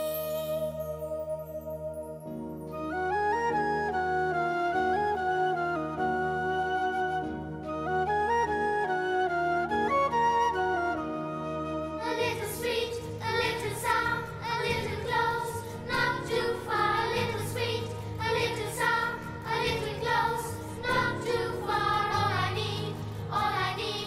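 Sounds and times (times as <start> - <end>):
voices singing: 12.0 - 24.0.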